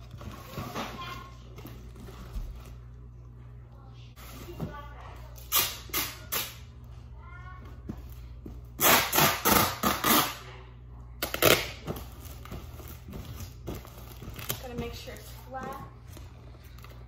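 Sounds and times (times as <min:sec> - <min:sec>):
packing tape ripping from dispenser: 0:05.5 - 0:06.6, 0:08.8 - 0:10.4, 0:11.2 - 0:11.8.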